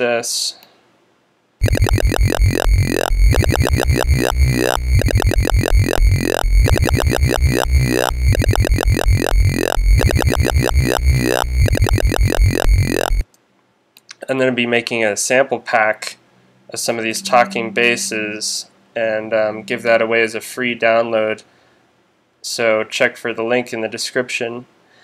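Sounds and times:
wobbling synth bass line: 1.6 - 13.2.

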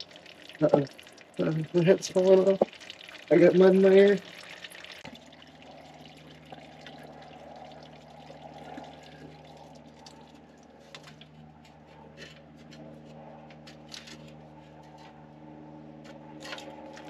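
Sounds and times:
fluid trickling: 0.0 - 11.4.

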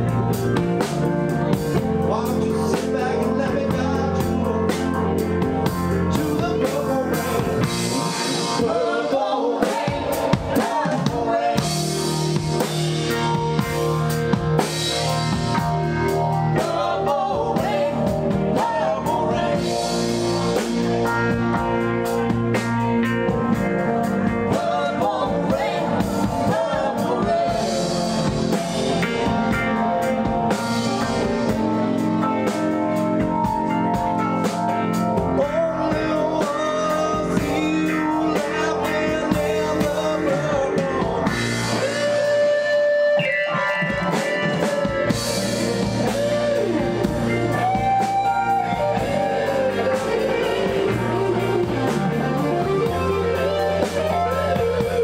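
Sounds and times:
live rock band playing: 0.0 - 55.0
person singing: 1.8 - 13.3, 16.4 - 20.8, 24.4 - 29.6, 35.1 - 55.0.

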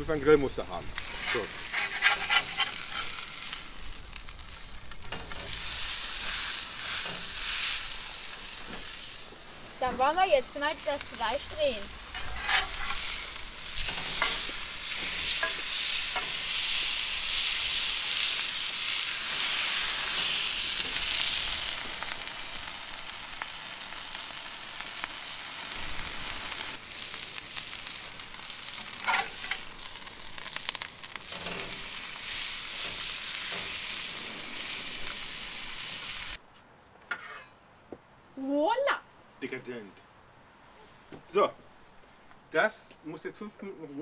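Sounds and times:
steak sizzling on grill: 0.0 - 36.4
metal spatula clicks and scrapes: 12.2 - 13.0.

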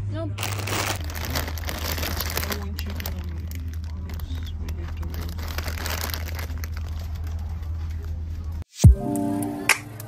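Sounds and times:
plastic packets crinkling: 0.4 - 7.7.

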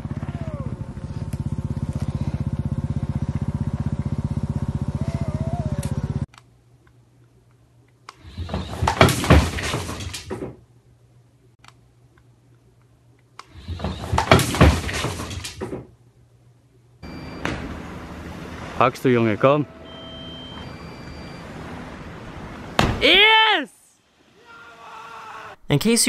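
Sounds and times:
small engine pulsing drone: 0.0 - 6.3, 17.0 - 22.0.

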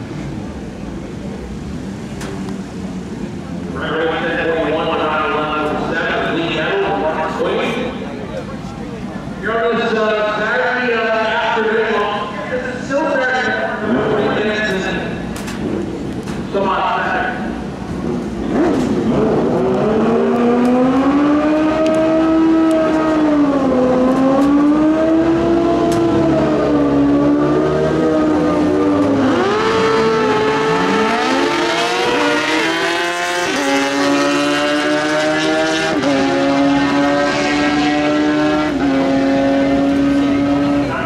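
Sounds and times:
motorcycles revving: 13.5 - 41.0
motorcycles launching at full throttle: 13.8 - 41.0.

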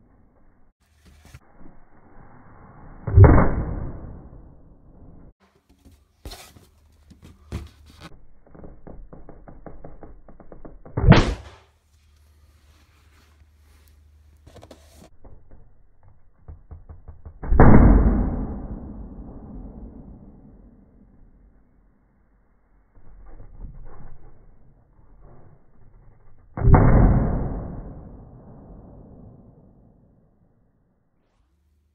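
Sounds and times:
balloons bursting: 11.0 - 11.7.

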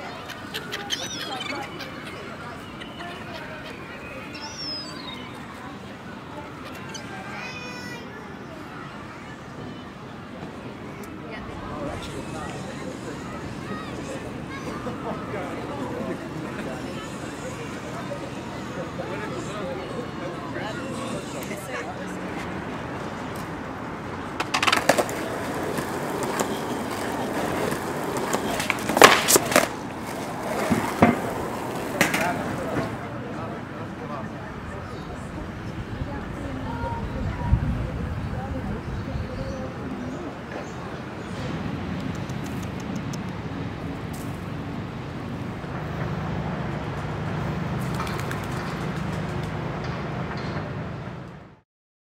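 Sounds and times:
distant road traffic rumble: 0.0 - 51.6
skateboard wheels rolling: 22.2 - 33.4
skateboard clattering onto paving: 24.4 - 33.0
skateboard deck slapping ground: 24.4 - 33.0
faint high clicks: 42.0 - 43.4.

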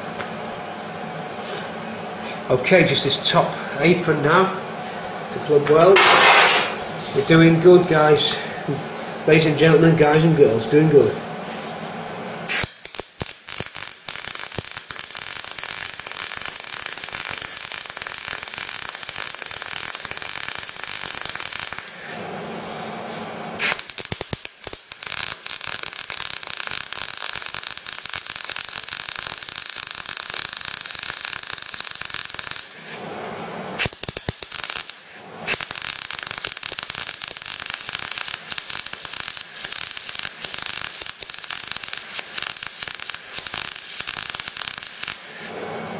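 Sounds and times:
welding arc crackling: 5.9 - 8.2, 12.4 - 45.5.

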